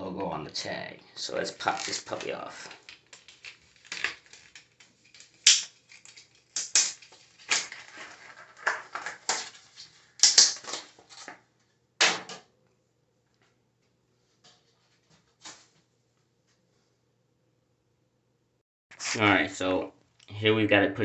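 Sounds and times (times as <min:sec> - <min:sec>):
paper label tearing and crumpling: 0:01.5 - 0:11.3.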